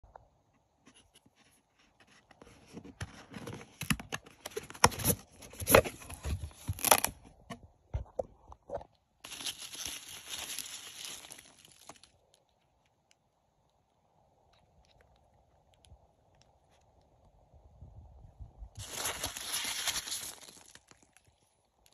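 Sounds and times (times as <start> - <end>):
cardboard box being torn open: 3.2 - 7.2
hands rustling packing material: 9.2 - 12.2, 18.8 - 21.4.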